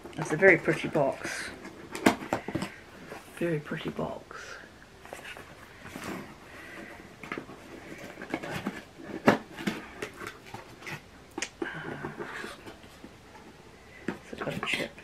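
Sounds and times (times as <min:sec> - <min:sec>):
packaging rustling and clicking: 0:05.0 - 0:15.0.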